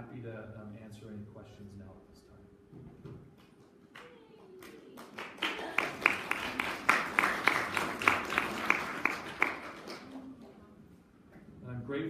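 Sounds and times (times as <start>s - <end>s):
audience applauding: 4.0s - 10.6s.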